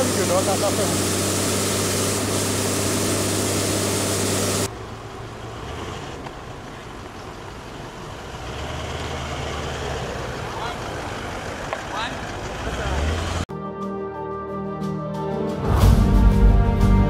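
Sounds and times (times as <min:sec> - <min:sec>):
loud engine hum: 0:00.0 - 0:13.5
suv engine running low: 0:00.0 - 0:13.5.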